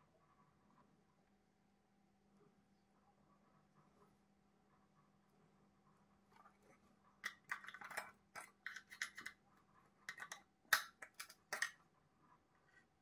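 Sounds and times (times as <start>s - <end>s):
hard object scratching surface: 6.4s - 9.4s.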